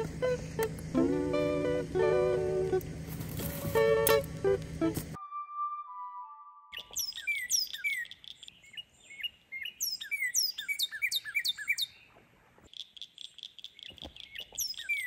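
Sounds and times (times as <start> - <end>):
high buzzing trill: 0.0 - 5.2
songbirds chirping and singing: 6.7 - 15.0.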